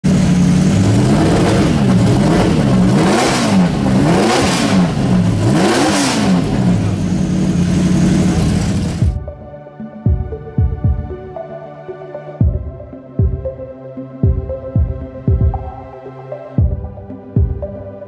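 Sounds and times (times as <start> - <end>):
car engine idling and revving: 0.0 - 9.2.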